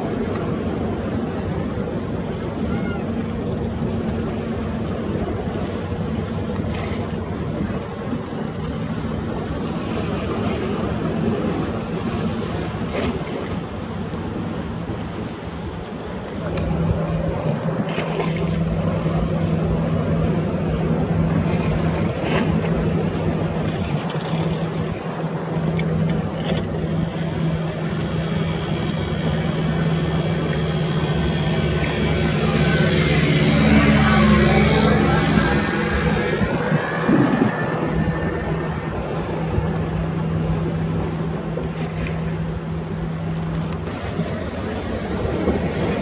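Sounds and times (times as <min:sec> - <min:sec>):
low engine-like drone: 0:00.0 - 0:46.0
wind noise: 0:32.0 - 0:46.0.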